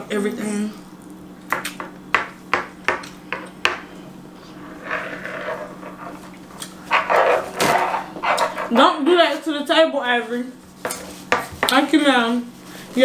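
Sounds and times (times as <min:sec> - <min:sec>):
cutlery scraping on plates: 0:04.8 - 0:08.9, 0:10.8 - 0:11.8.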